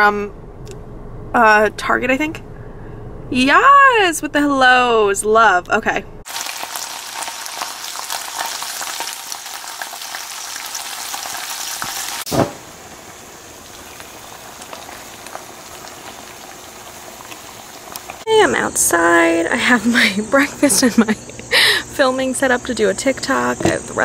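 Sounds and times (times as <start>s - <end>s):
food sizzling in frying pan: 6.3s - 18.6s
brief thump: 12.3s - 12.7s.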